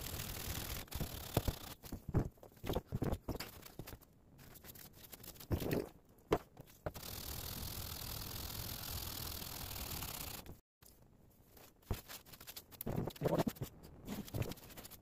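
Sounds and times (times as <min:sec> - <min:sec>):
knocks and handling sounds: 0:01.8 - 0:05.0.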